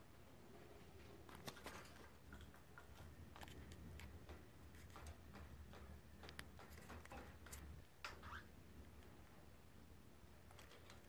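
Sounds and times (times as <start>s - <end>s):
bird clicking and tapping in cage: 1.3s - 8.2s.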